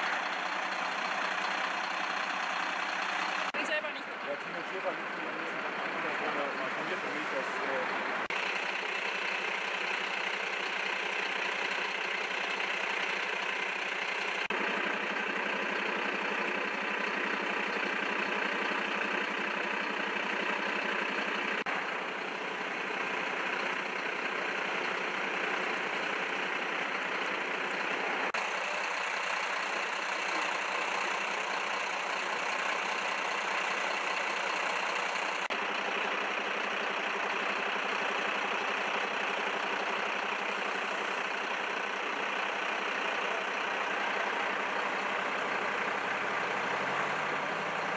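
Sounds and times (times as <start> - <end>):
engine idling hum: 0.0 - 47.9.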